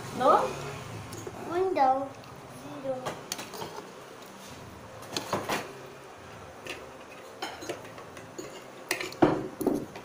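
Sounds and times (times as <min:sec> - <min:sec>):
tableware knocks and clicks: 0:05.1 - 0:05.7, 0:06.6 - 0:10.0.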